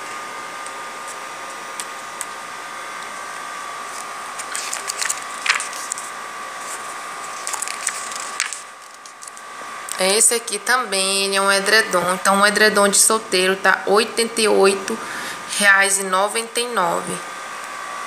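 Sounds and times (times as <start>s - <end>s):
background whir: 0.0s - 18.0s
faint high hum: 0.0s - 18.0s
magazine pages rustling: 3.9s - 9.5s.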